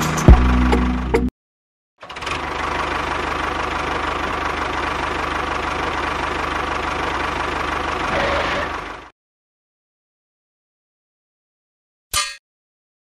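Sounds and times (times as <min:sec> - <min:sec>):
tractor engine idling: 0:00.0 - 0:01.3, 0:02.0 - 0:09.1.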